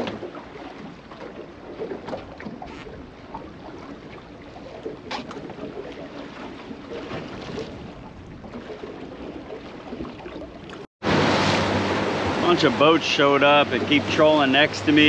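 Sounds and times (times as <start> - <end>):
water lapping against boat hull: 0.0 - 15.0
sharp splash: 3.8 - 15.0.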